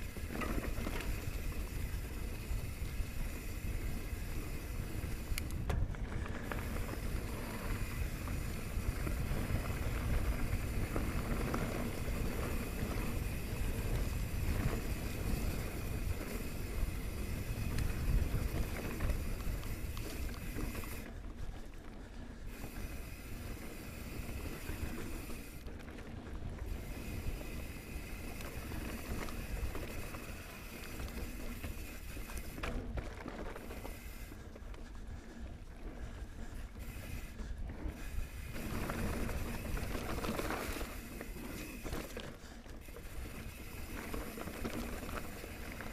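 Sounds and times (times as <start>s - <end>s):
bike tyres rolling and rattling: 0.0s - 45.9s.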